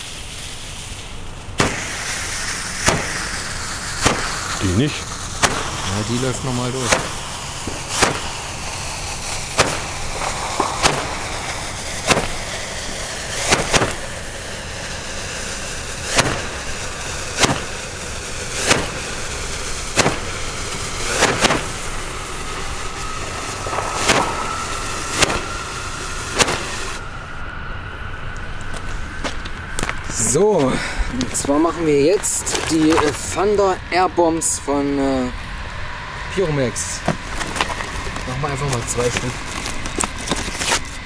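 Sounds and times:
hiss of burning charge: 0.0s - 27.3s
roman candle popping: 1.5s - 27.0s.

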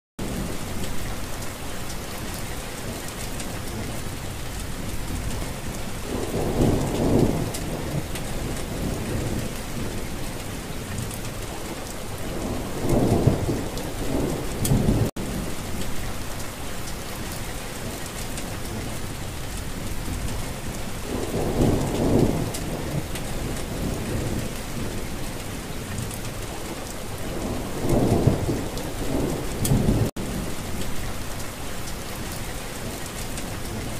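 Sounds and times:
rain falling: 0.2s - 33.9s
low rolls of thunder: 3.7s - 16.2s, 20.0s - 31.2s.

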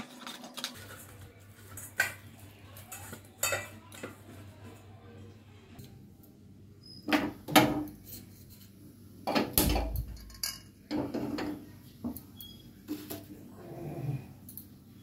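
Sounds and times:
low rumble of gas burner: 7.2s - 15.0s.

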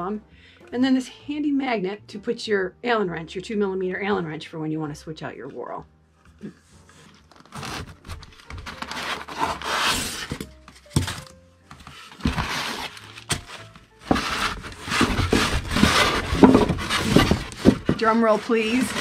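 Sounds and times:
cardboard rustling and scraping: 6.6s - 19.0s.

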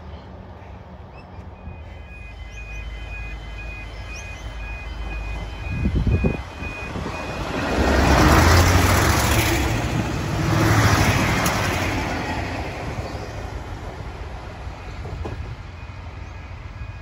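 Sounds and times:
diesel railcar engine rumble: 0.0s - 17.0s
wheels rushing on rails: 0.0s - 17.0s
electronic warning beeps: 1.6s - 7.8s.

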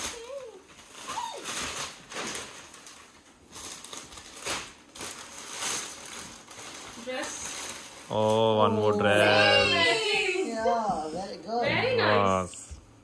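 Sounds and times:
gift wrapping crinkling: 0.0s - 9.9s.

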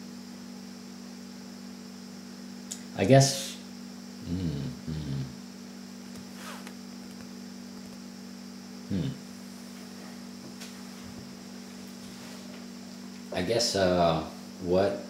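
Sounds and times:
electrical mains hum: 0.0s - 15.0s
short vocal sound: 4.2s - 5.4s, 8.9s - 9.3s.

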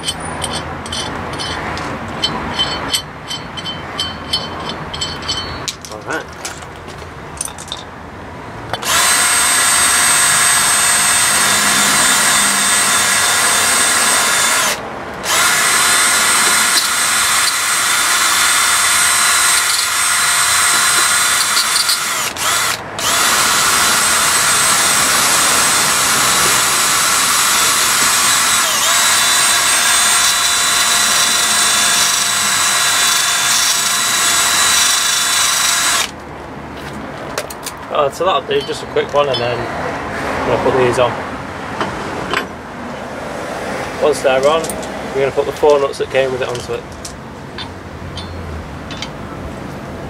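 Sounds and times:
cordless drill whining: 8.8s - 36.2s.

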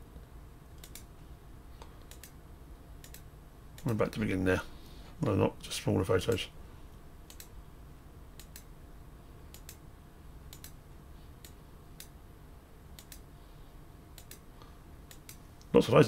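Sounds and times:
computer mouse clicking: 0.8s - 1.1s, 1.8s - 2.4s, 3.0s - 3.9s, 7.3s - 7.5s, 8.4s - 8.7s, 9.5s - 9.8s, 10.5s - 10.8s, 11.4s - 12.2s, 13.0s - 13.3s, 14.2s - 14.4s, 15.1s - 15.4s.

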